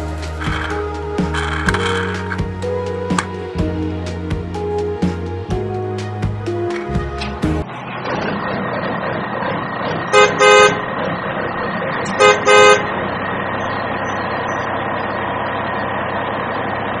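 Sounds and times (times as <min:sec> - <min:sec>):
vehicle engine running: 0:00.0 - 0:05.7, 0:06.3 - 0:17.0
car horn double toots: 0:10.1 - 0:10.8, 0:12.1 - 0:12.9.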